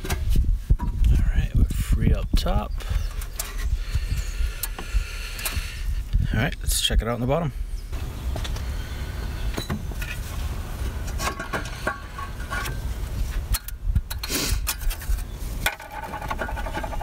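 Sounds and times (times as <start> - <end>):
metal scraping and clinking: 9.6 - 17.0.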